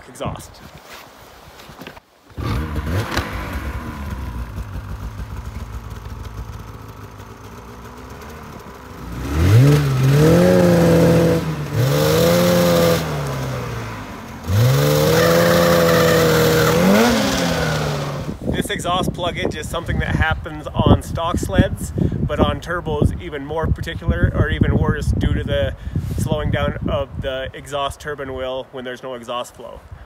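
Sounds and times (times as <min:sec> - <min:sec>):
snowmobile engine idling and revving: 0:02.3 - 0:22.2.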